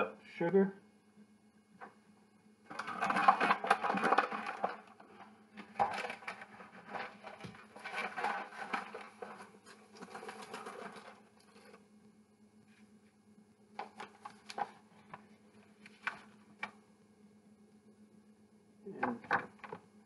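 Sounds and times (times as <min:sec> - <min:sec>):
paper bag rustling: 0:02.7 - 0:11.8, 0:13.8 - 0:16.4
sugar scraping and pattering: 0:02.7 - 0:11.9.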